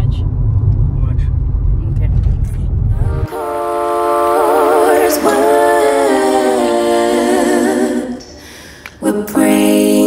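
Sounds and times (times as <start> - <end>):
person singing with vibrato: 2.9 - 10.0.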